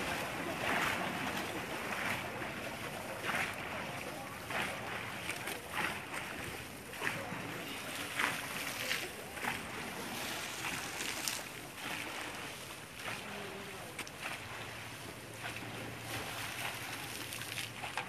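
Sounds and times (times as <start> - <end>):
rushing river water: 0.0 - 18.0.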